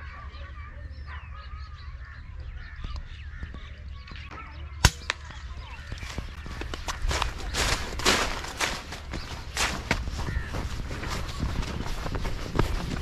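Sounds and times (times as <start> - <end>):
birds chirping: 0.0 - 13.0
sharp crack: 4.8 - 5.4.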